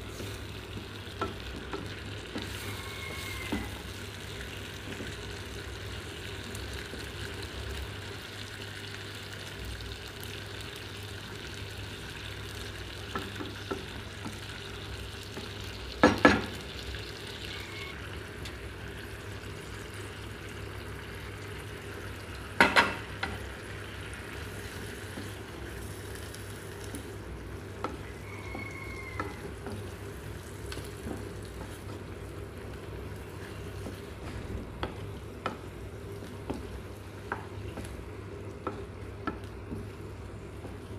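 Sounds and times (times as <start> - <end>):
food sizzling in a frying pan: 0.0 - 40.9
wooden spatula stirring: 24.3 - 40.9.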